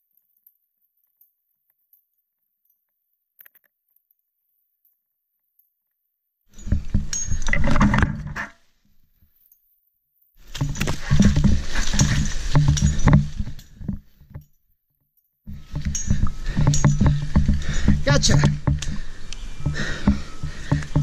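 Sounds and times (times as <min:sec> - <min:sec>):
rope and climbing gear rubbing: 0:06.5 - 0:14.4, 0:15.5 - 0:21.0.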